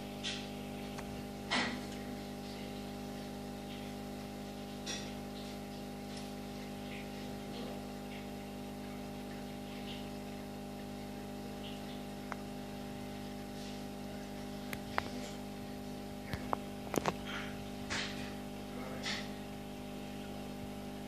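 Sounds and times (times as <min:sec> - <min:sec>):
aquarium filter motor humming: 0:00.0 - 0:21.0.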